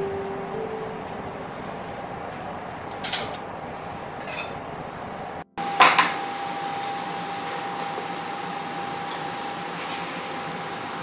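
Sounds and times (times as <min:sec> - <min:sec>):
steady hum: 0:00.0 - 0:07.5.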